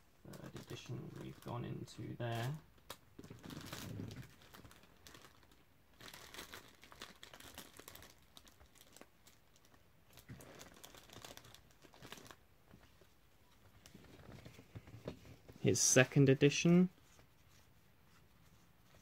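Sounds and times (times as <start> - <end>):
plastic bag crinkling: 0.3 - 12.4.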